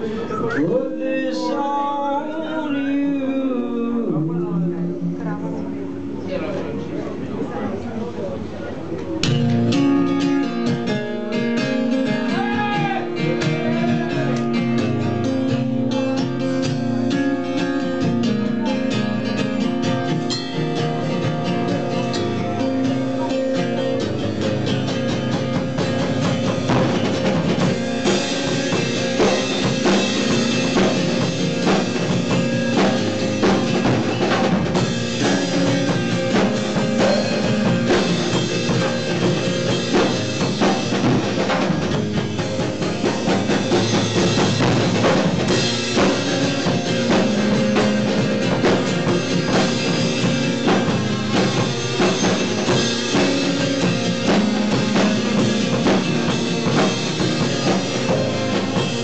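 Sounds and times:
live rock band playing: 0:00.0 - 0:07.3, 0:09.0 - 0:59.0
acoustic guitar: 0:00.0 - 0:59.0
drum kit: 0:09.0 - 0:59.0.

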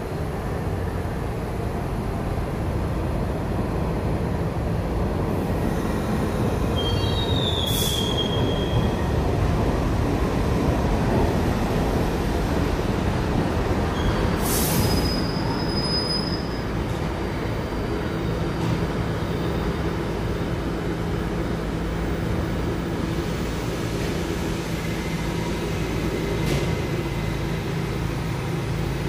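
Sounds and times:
subway train wheels rumbling: 0:00.0 - 0:29.0
hiss: 0:06.8 - 0:08.4, 0:14.3 - 0:15.3.

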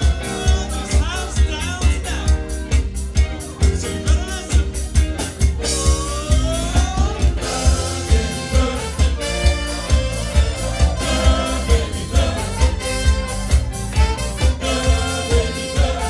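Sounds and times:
live band playing disco: 0:00.0 - 0:16.0
person singing: 0:05.6 - 0:13.4, 0:14.0 - 0:16.0.

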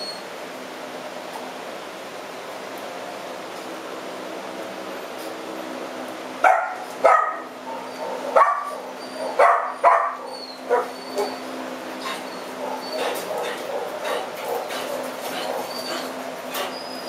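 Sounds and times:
dog barking: 0:06.4 - 0:11.4, 0:12.6 - 0:15.7.

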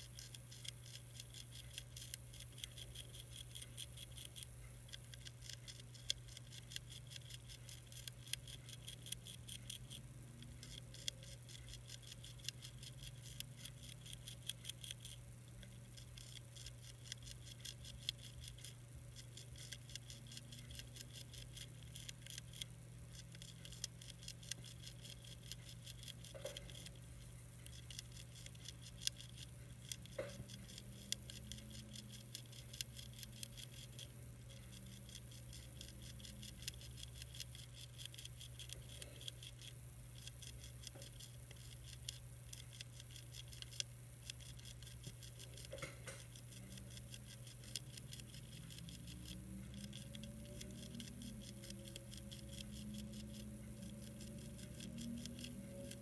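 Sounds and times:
caterpillar chewing a leaf: 0:00.0 - 0:56.0.

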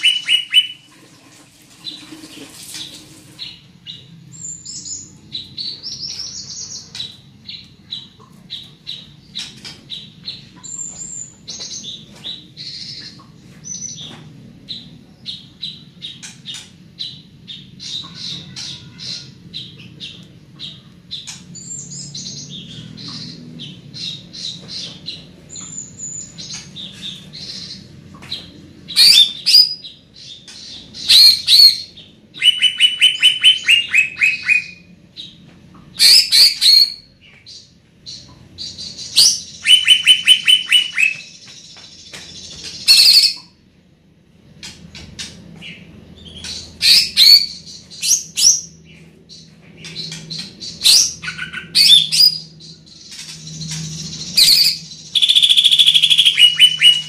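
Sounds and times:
bird singing high chirps: 0:00.0 - 0:00.9, 0:14.7 - 0:35.4, 0:36.0 - 0:43.6, 0:45.6 - 0:57.0
loud harsh bird notes: 0:00.0 - 0:01.2, 0:01.8 - 0:43.6, 0:45.2 - 0:57.0.

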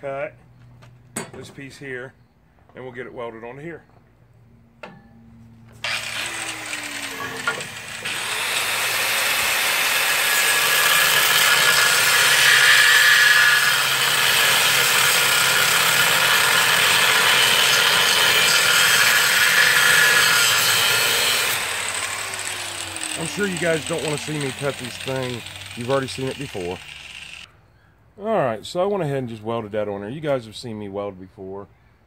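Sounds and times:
power tool cutting wood: 0:05.8 - 0:27.5.

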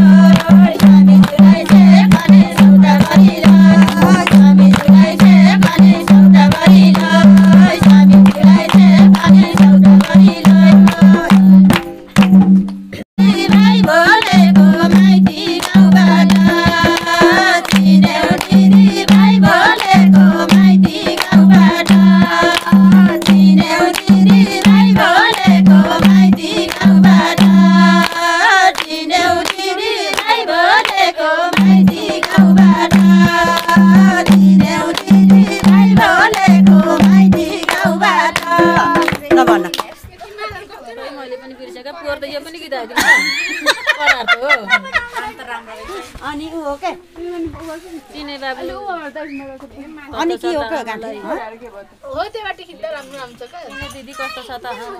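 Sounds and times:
women singing folk song: 0:00.0 - 0:11.8, 0:13.2 - 0:39.8
hand-clapping: 0:00.0 - 0:12.8, 0:13.5 - 0:40.1
hand drum beating: 0:00.0 - 0:40.7.

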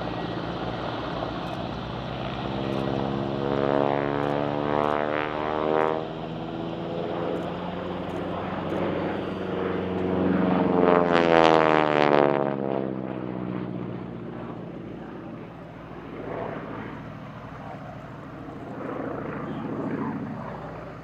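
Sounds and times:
propeller plane engine drone: 0:00.0 - 0:21.0.

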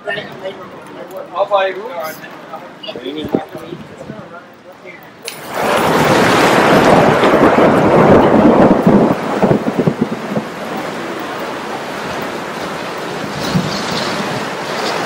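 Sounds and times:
heavy rain pouring: 0:05.3 - 0:15.0.

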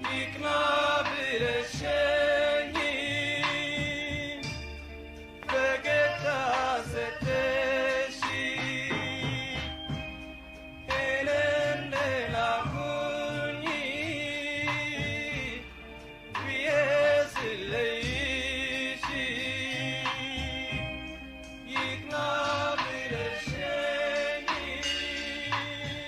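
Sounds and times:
man singing: 0:00.0 - 0:04.7, 0:05.4 - 0:10.0, 0:10.8 - 0:26.0
band with bass line: 0:00.0 - 0:26.0.

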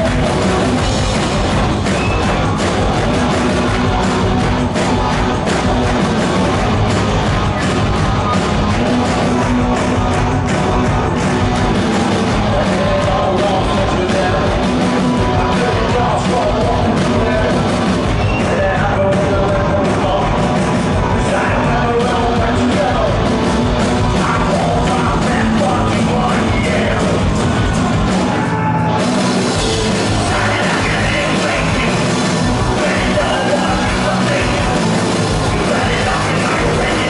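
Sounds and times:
rock band playing live: 0:00.0 - 0:37.0
person singing: 0:12.2 - 0:27.4, 0:29.6 - 0:37.0.

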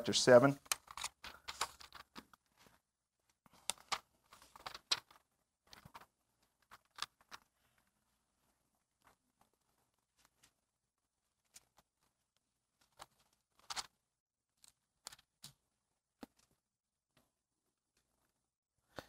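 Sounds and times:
thin pages turning: 0:00.6 - 0:02.8, 0:03.4 - 0:07.8, 0:12.8 - 0:14.0.

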